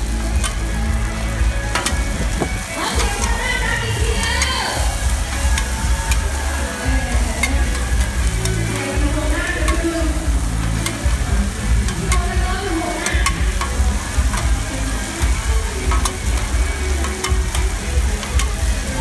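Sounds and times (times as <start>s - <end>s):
batter sizzling in oil: 0.0s - 19.0s
metal spatula scraping pan: 7.2s - 12.4s.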